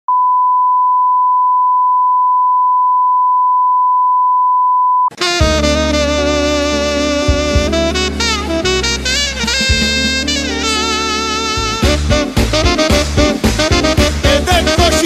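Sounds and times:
loud music: 5.2s - 15.0s.

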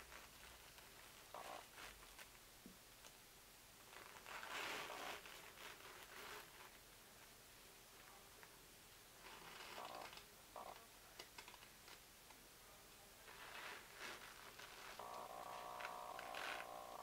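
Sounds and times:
cloth rustling: 0.0s - 2.4s, 3.8s - 6.9s, 9.2s - 10.2s, 13.2s - 17.0s.

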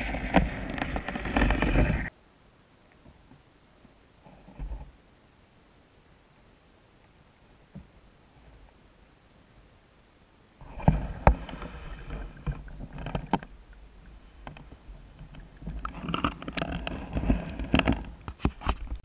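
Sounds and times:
water sloshing and splashing: 10.6s - 19.0s.

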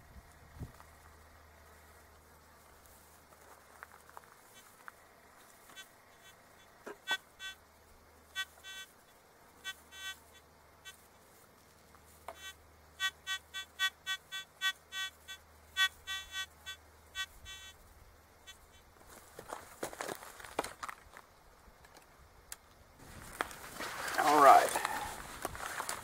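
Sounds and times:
metal detector beeping: 5.6s - 7.6s, 8.3s - 8.9s, 9.6s - 11.0s, 12.3s - 17.8s, 18.4s - 18.8s.

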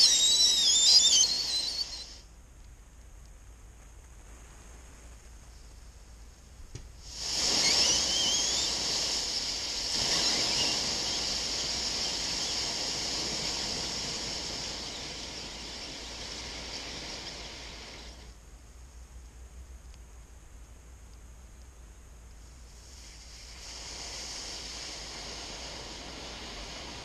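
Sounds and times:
whistling squeals: 0.0s - 2.2s, 7.1s - 18.3s
battery venting gas hiss: 0.0s - 2.3s, 5.3s - 19.3s, 21.6s - 27.0s.

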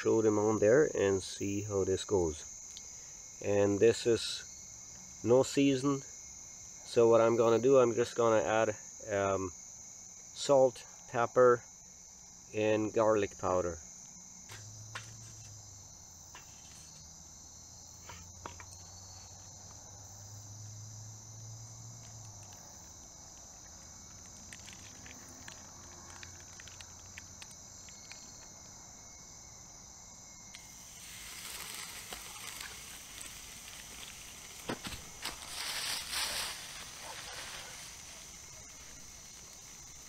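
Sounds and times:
crickets trilling: 0.0s - 40.0s
faint clicks: 22.0s - 28.5s
steak sizzling on grill: 30.6s - 40.0s.

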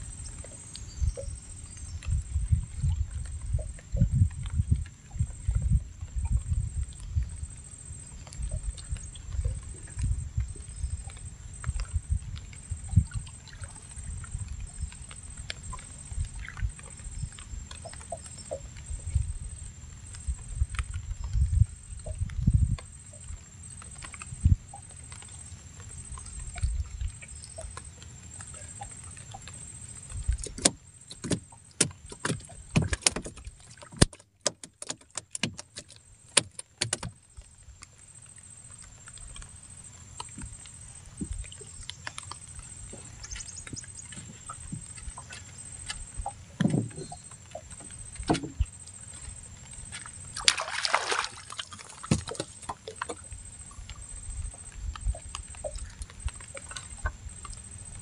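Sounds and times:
water lapping at hull: 0.0s - 58.0s
fish splashing: 38.7s - 58.0s.

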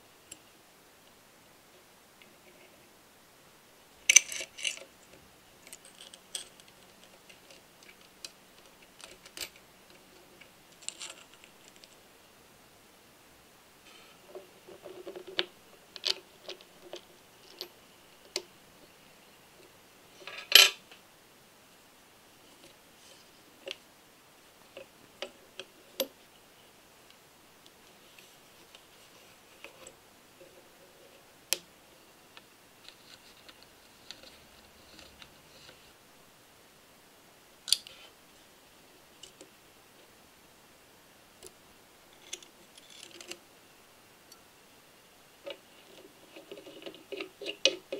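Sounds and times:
metal parts clattering: 4.1s - 4.8s
small metal parts clinking: 4.1s - 4.9s, 5.6s - 7.6s, 10.7s - 11.9s.

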